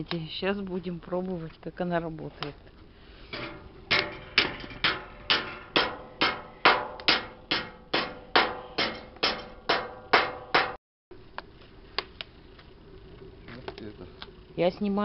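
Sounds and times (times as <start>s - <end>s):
sharp metallic ringing hits: 3.3s - 10.8s.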